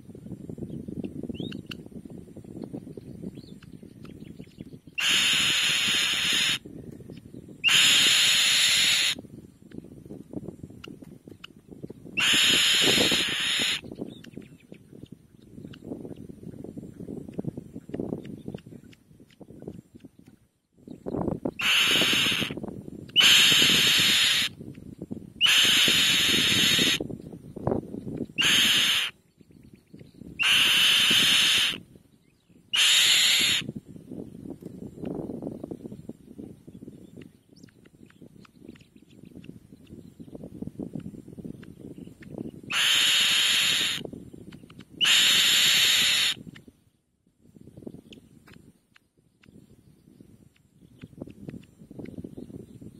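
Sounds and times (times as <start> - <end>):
bird hissing screams: 5.0 - 6.6, 7.6 - 9.2, 12.2 - 13.8, 21.6 - 22.6, 23.2 - 24.5, 25.4 - 27.0, 28.4 - 29.2, 30.4 - 31.8, 32.8 - 33.7, 42.7 - 44.0, 45.0 - 46.4.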